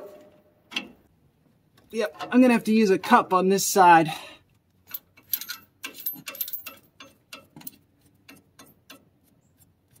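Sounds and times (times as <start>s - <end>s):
metal clicks of nut on bolt: 4.9s - 9.1s.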